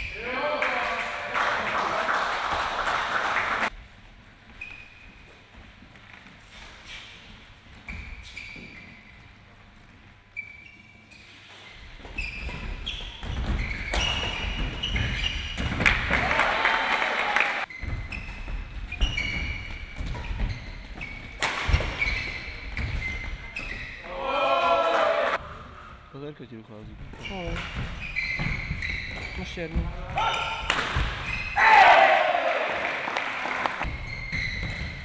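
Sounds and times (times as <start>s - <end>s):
shoes squeaking on court floor: 4.4s - 16.0s, 17.6s - 24.1s, 27.0s - 31.6s, 33.8s - 35.0s
spectators cheering: 16.1s - 17.7s, 24.1s - 25.4s, 31.6s - 33.8s
racket hitting shuttlecock: 21.4s - 22.1s.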